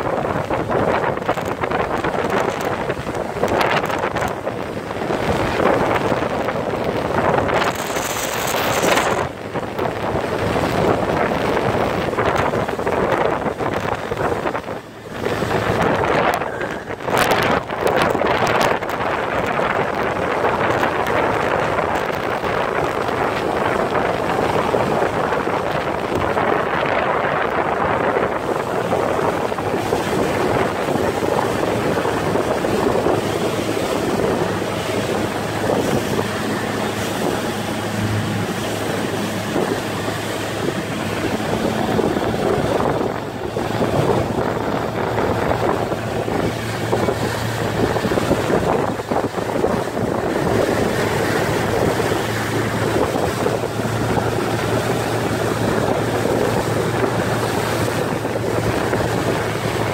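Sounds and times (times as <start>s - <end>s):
churning water: 0.0s - 59.9s
outboard motor humming: 0.0s - 59.9s
wind rushing: 0.0s - 59.9s.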